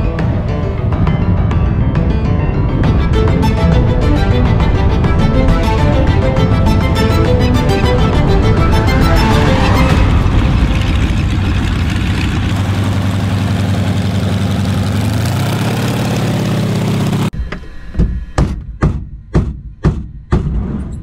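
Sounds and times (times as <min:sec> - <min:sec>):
radial aircraft engine idling: 0:02.0 - 0:18.4.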